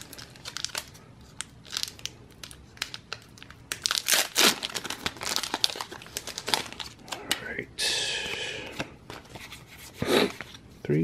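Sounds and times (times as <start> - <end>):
foil wrapper crinkling: 0.0 - 7.3.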